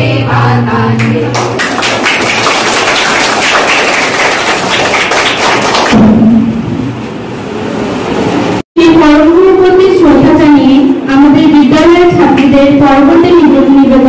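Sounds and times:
girls singing: 0.0 - 1.6
clapping and bustle: 1.0 - 6.0
loud low note: 5.9 - 7.6.

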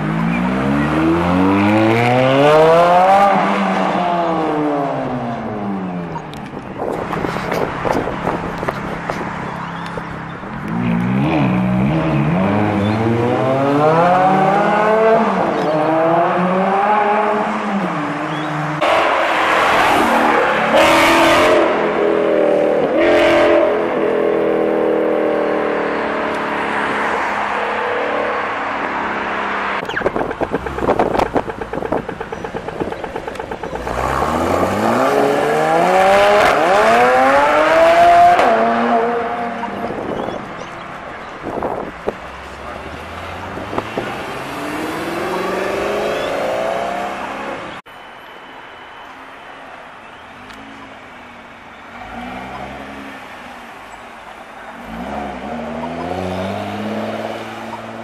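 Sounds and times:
car engine revving up: 0.0 - 47.8, 54.7 - 58.0
car engines accelerating through gears: 0.0 - 47.8, 54.5 - 58.0
exhaust pops and crackles: 6.2 - 11.2, 29.8 - 35.5.

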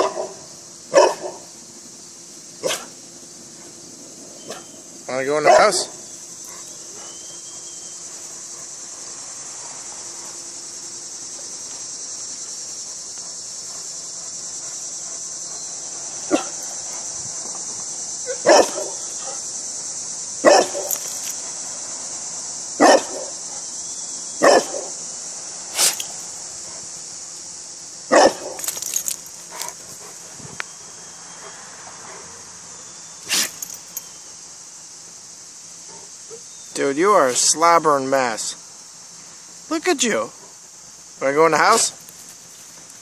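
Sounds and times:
dog barking: 0.0 - 1.5, 2.6 - 2.9, 5.4 - 7.2, 16.3 - 16.6, 18.3 - 19.4, 20.4 - 21.0, 22.8 - 23.4, 24.4 - 24.9, 28.1 - 28.6.

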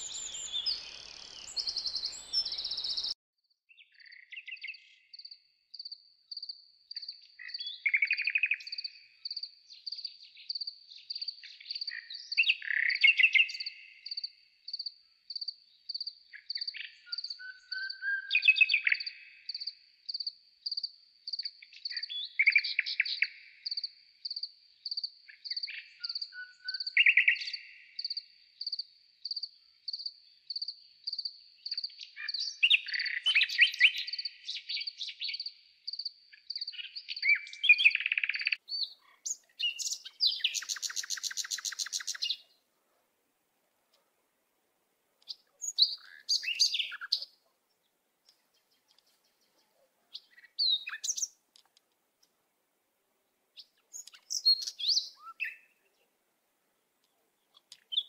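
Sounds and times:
birds calling: 0.0 - 3.2, 31.7 - 42.6, 45.2 - 47.5, 48.3 - 51.7, 53.6 - 56.0.

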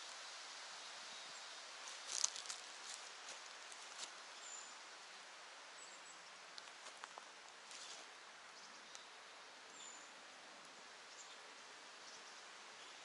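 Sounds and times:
faint hiss: 0.0 - 13.0
footsteps crunching on pine needles: 1.8 - 4.2, 6.6 - 8.1.

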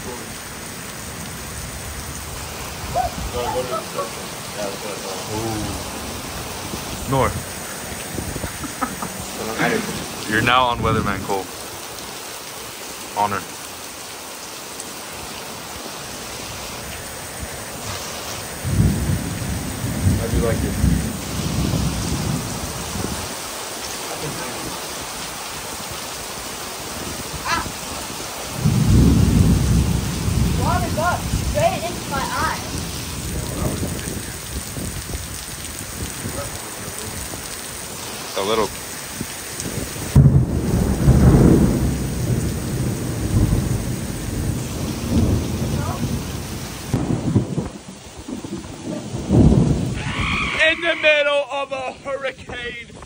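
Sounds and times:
heavy rain: 0.0 - 53.0
thunder rumble: 1.1 - 11.5, 16.4 - 23.4, 27.0 - 50.7.

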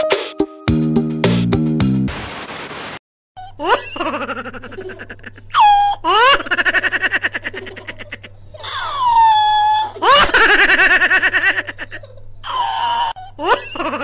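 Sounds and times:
girl laughing hysterically: 3.5 - 14.0
girl squealing: 5.5 - 6.1, 8.6 - 10.1.

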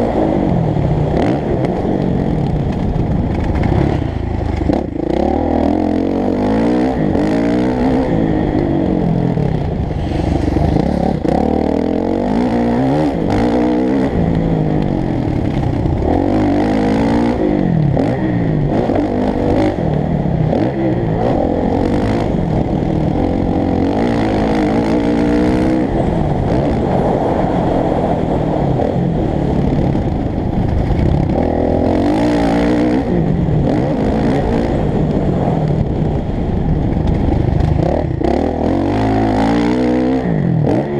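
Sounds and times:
motocross bike engine revving: 3.4 - 30.0, 30.6 - 35.5, 37.3 - 40.9.

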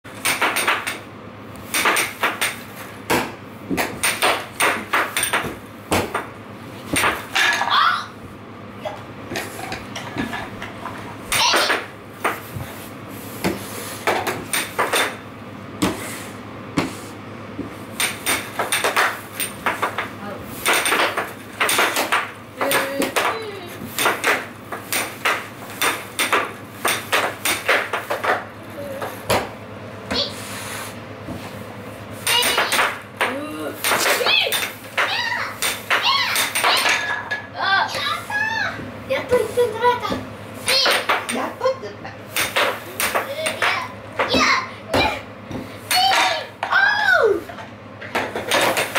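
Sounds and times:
puck clacking on wooden rails: 17.6 - 29.5, 32.3 - 37.2.

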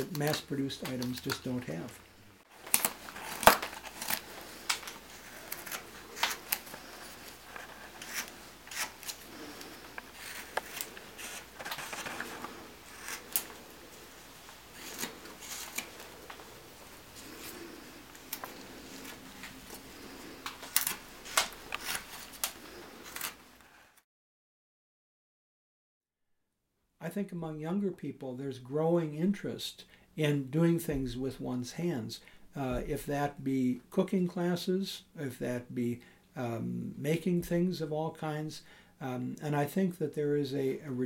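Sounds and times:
carving knife cutting wood: 4.8 - 13.6, 14.6 - 16.3.

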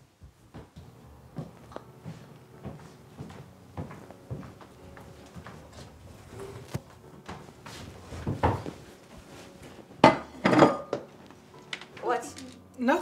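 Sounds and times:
kitchen knocks and clinks: 10.0 - 11.1
plate set down on wooden table: 10.0 - 11.1.

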